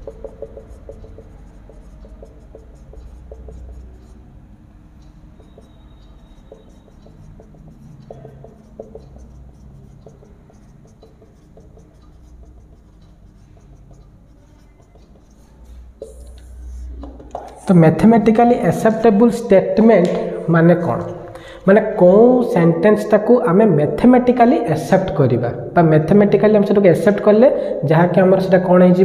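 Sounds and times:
low steady hum: 0.0 - 22.6
marker pen on whiteboard: 0.0 - 25.2, 26.0 - 29.0.

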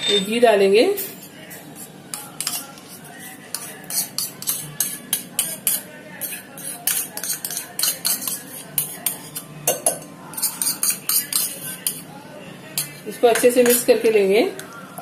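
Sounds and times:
utensils scraping bowls: 0.0 - 9.5, 10.3 - 12.0.

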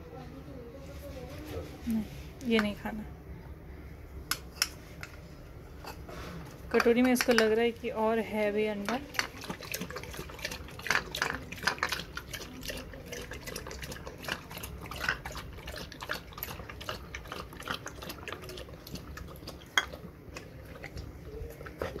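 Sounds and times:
dog lapping and licking: 8.9 - 22.0.

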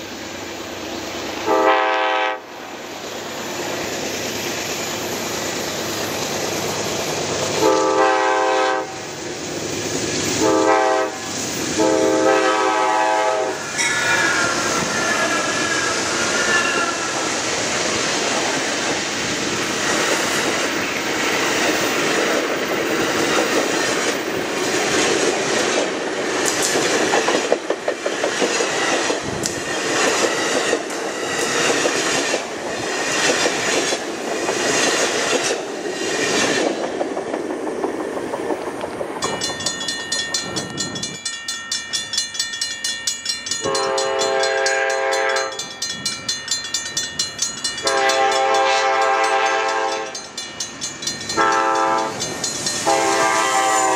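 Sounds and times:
distant train air horn: 1.4 - 2.6, 7.6 - 9.1, 10.4 - 15.6, 43.6 - 45.6, 47.8 - 50.2, 51.4 - 52.2, 52.8 - 53.9
train wheels clattering over rail joints: 14.4 - 40.8.

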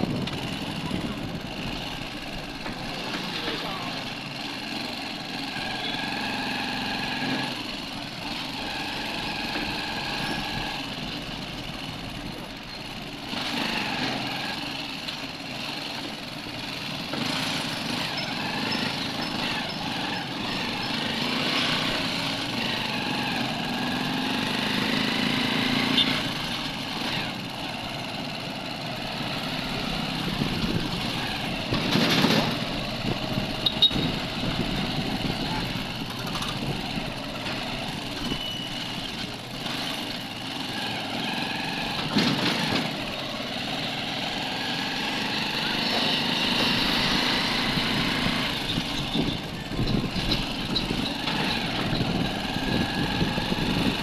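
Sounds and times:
small motorcycle engine running: 0.0 - 54.0
street traffic: 0.0 - 54.0.

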